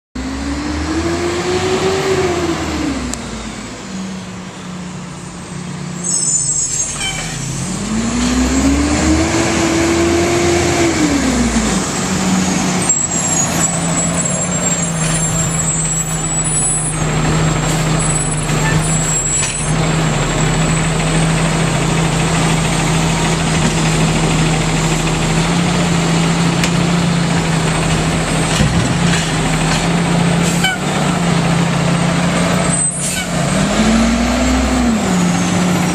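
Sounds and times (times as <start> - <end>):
diesel engine revving: 0.2 - 35.9
brake squeal: 5.9 - 7.9, 12.3 - 21.4, 27.7 - 31.2, 32.5 - 33.6, 34.4 - 35.9.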